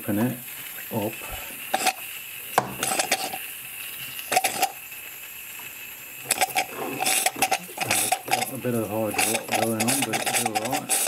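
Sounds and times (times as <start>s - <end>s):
steady steam hiss: 0.0s - 11.0s
model engine clinking and spluttering: 4.3s - 4.8s, 6.3s - 11.0s.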